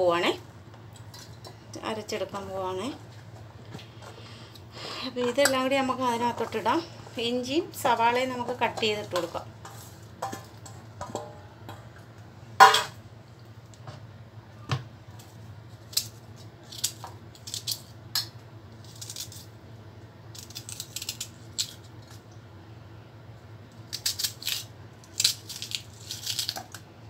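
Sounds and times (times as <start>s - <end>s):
knife scraping ginger: 15.9s - 17.9s, 18.8s - 19.5s, 20.3s - 21.9s, 23.9s - 26.7s.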